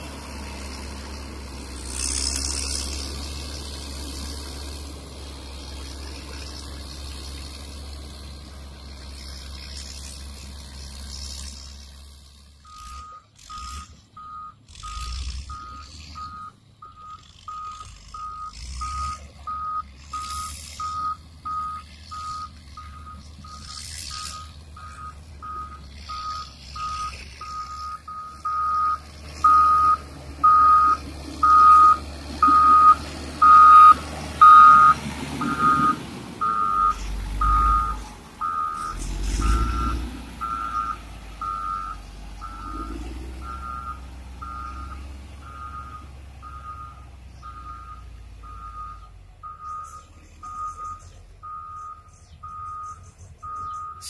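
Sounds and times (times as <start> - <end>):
diesel engine rumble: 0.0 - 54.0
back-up alarm beeping: 12.7 - 54.0.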